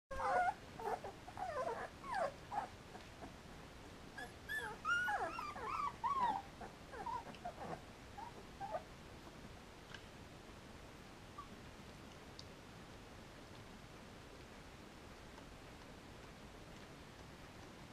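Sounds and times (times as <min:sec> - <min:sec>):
puppies whimpering and squeaking: 0:00.1 - 0:03.3, 0:04.2 - 0:08.9.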